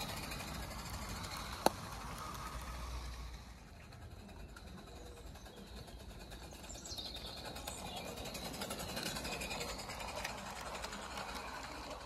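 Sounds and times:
model train wheels clicking: 0:00.0 - 0:12.0.

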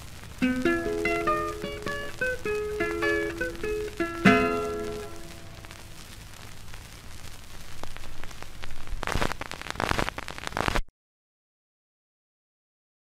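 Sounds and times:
record surface noise crackle: 0:00.0 - 0:10.9
guitar note: 0:00.4 - 0:06.1.

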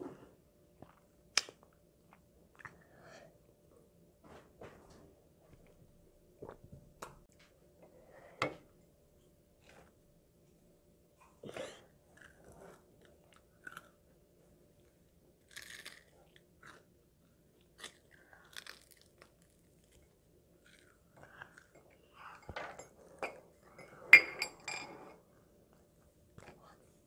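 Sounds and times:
child chewing crispy food: 0:12.0 - 0:22.2.

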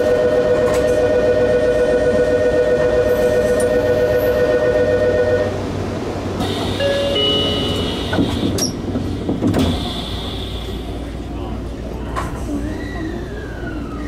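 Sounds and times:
electronic departure bell: 0:00.0 - 0:05.5, 0:06.8 - 0:08.0
train doors closing knocks: 0:06.4 - 0:10.0.

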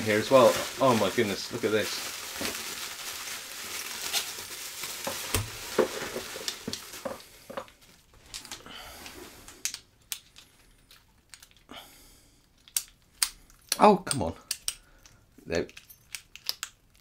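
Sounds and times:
bubble wrap crinkling: 0:00.0 - 0:08.6
padlocks and keys clinking: 0:12.6 - 0:17.0.

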